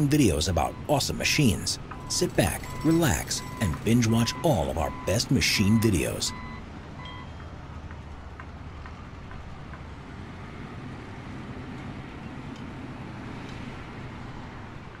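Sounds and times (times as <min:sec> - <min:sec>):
heavy machinery rumbling: 0:00.0 - 0:06.5.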